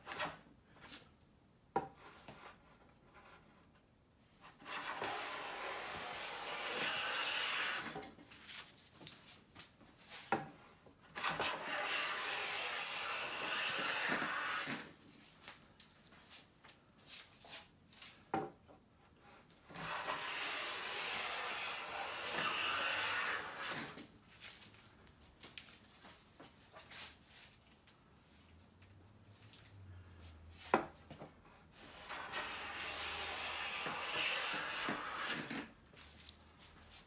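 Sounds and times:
hand plane cutting wood shavings: 4.6 - 8.0, 11.2 - 14.9, 19.7 - 24.0, 31.9 - 35.7.

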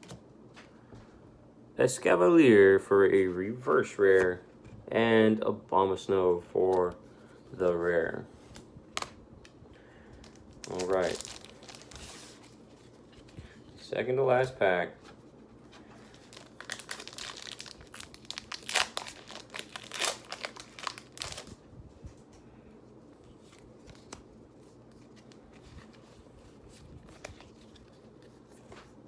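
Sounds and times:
packaging crinkling and tearing: 10.2 - 13.3, 16.1 - 21.6.

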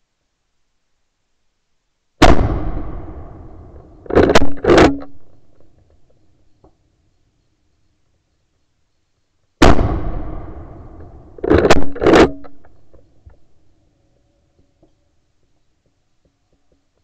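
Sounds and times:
rifle shot: 2.2 - 5.7, 9.6 - 13.0.

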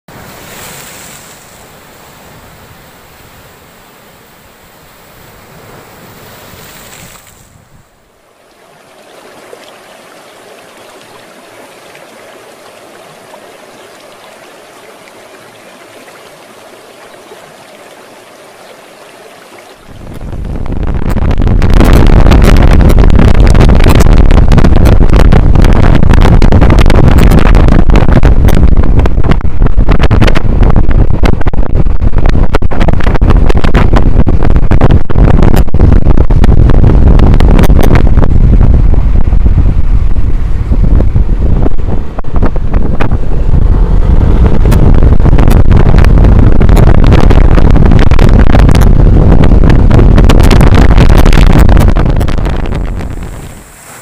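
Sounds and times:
wind buffeting microphone: 0.1 - 18.7, 19.6 - 54.0.

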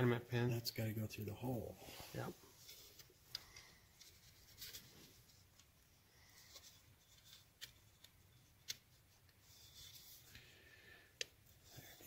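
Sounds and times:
hand rubbing metal parts: 1.9 - 10.3.

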